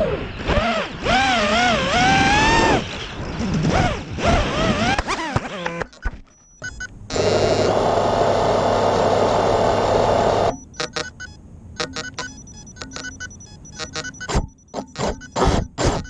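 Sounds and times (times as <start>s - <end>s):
drone motors buzzing: 0.0s - 16.0s
scattered clicks and knocks: 10.5s - 16.0s.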